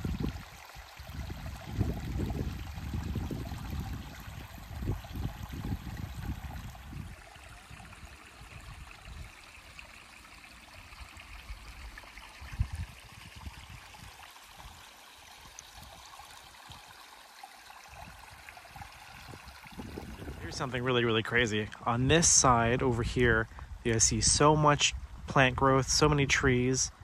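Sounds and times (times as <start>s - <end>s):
stream trickling over stones: 0.0s - 27.0s
low rumbles: 19.8s - 27.0s.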